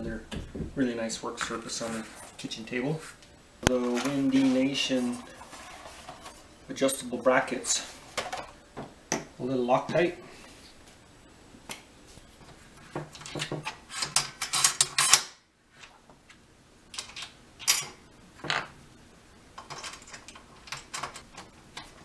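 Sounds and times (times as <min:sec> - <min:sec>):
metal bolts and washers clinking: 0:13.2 - 0:15.2, 0:16.9 - 0:18.7, 0:19.6 - 0:21.9.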